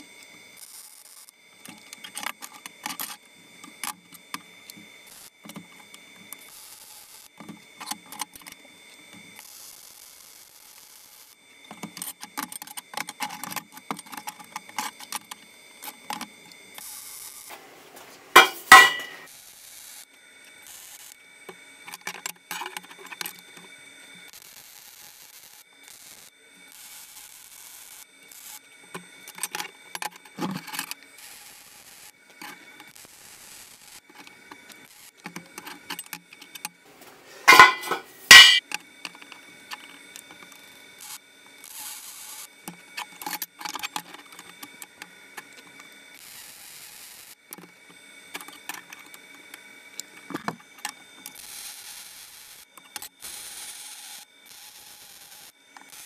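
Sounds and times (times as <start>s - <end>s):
clinks of steel being handled: 18.3s - 19.3s, 37.0s - 38.6s
loud sharp metal knocks: 18.4s - 19.3s, 37.5s - 38.6s.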